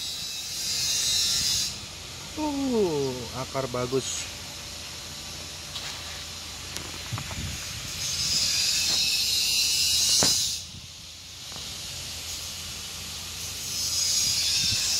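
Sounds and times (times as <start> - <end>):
steady hissing: 0.0 - 14.9.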